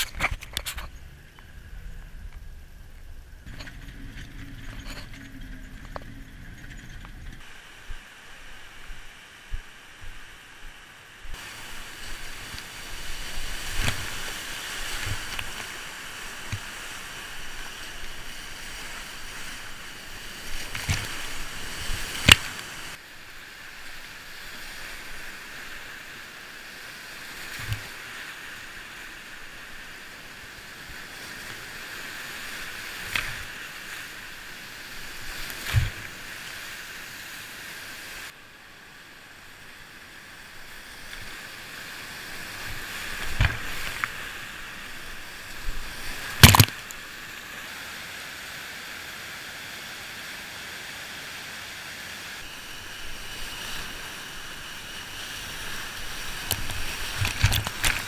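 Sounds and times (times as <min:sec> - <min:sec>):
whitewater rapids rushing: 0:07.4 - 0:38.4, 0:40.4 - 0:58.0
knocks and splashes: 0:35.5 - 0:36.2, 0:42.6 - 0:44.3, 0:46.0 - 0:46.9, 0:56.4 - 0:58.0.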